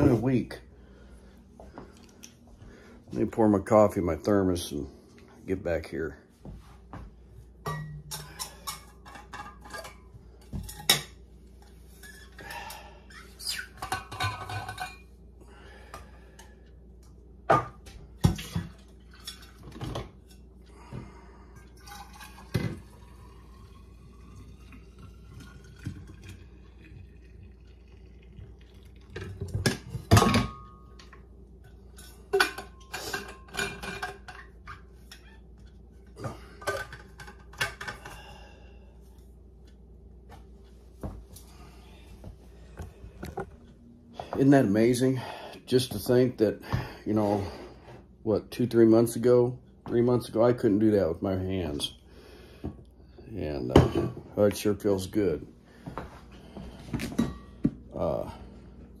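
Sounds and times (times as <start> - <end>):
coffee pouring into flask: 21.6 - 29.6.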